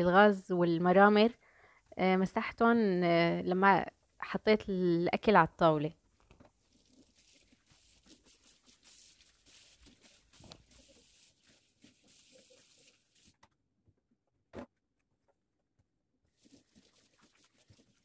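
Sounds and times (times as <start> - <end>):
scrubbing sink: 6.6 - 13.4, 16.3 - 18.0
tap water running: 6.6 - 13.4, 16.3 - 18.0.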